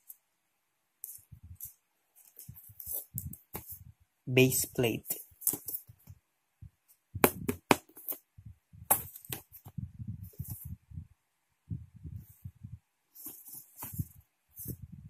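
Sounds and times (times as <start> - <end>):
soft thumps and rubbing: 1.1 - 4.0, 8.8 - 10.8, 13.2 - 15.0.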